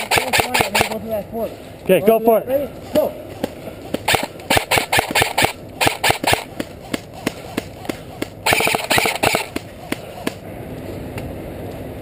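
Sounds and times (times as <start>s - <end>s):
airsoft guns firing: 0.0s - 1.0s, 4.0s - 6.6s, 8.2s - 9.7s.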